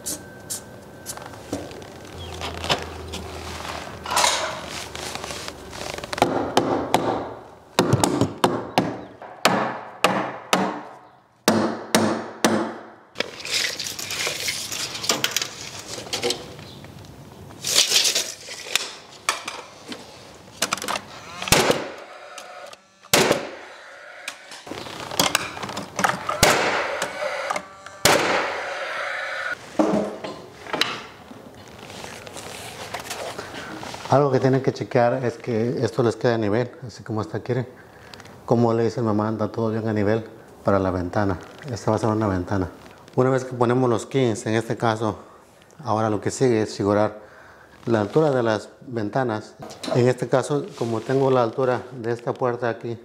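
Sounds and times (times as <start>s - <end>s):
lumber scraping: 1.2s - 6.4s, 17.5s - 30.7s, 50.0s - 52.0s.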